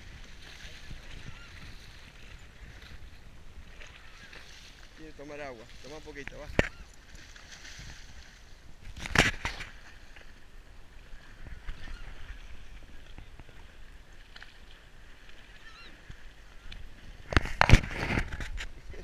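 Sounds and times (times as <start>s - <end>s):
horse hooves splashing through water: 0.0s - 19.0s.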